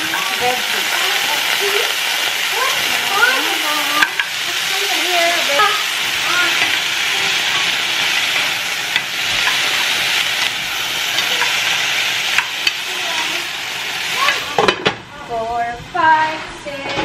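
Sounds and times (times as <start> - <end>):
vegetables sizzling in frying pan: 0.0 - 15.4
spatula knocking against pan: 4.0 - 4.4.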